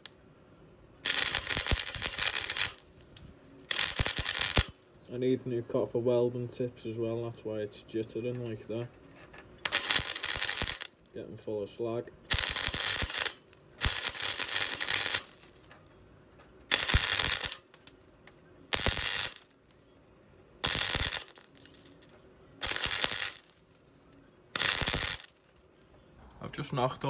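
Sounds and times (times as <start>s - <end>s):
welder arc crackling: 0.0s - 0.2s, 1.0s - 4.9s, 8.4s - 11.3s, 12.2s - 16.0s, 16.6s - 19.8s, 20.6s - 23.8s, 24.5s - 25.6s.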